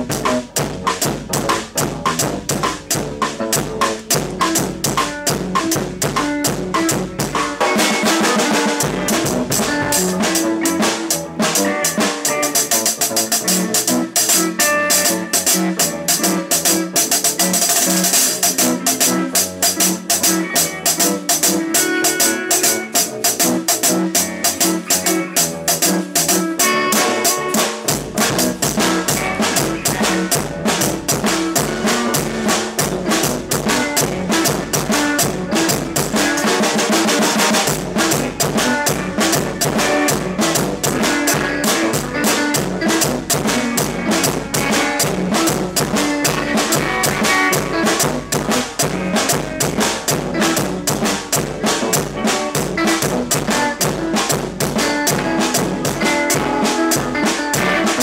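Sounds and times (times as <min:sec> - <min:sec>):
deep bass: 0:00.0 - 0:07.4, 0:27.9 - 0:36.0
music with steady drum beat: 0:00.0 - 0:58.0.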